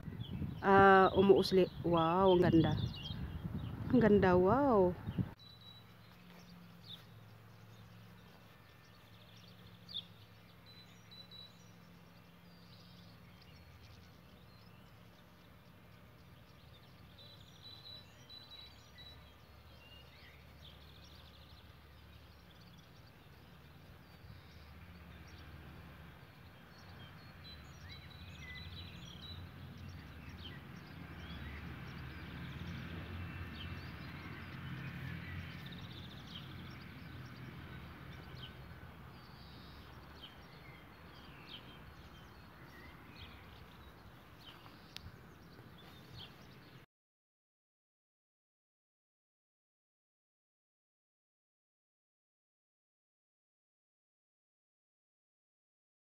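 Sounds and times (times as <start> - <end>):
bird chirps: 5.0 - 25.5, 26.3 - 46.8.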